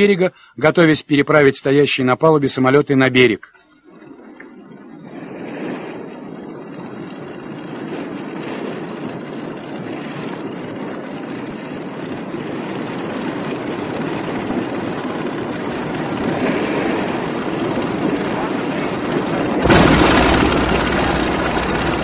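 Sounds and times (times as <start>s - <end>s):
propeller aircraft engines droning: 3.6s - 22.0s.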